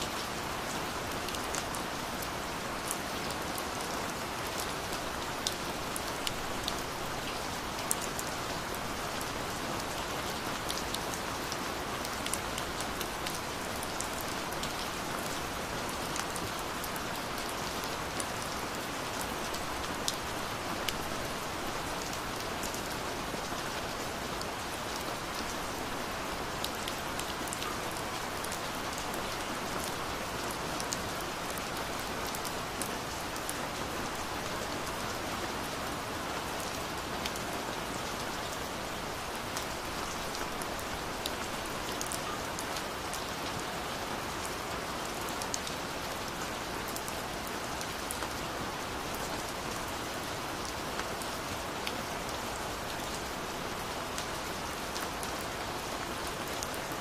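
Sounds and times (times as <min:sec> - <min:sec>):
gentle rain hiss: 0:00.0 - 0:57.0.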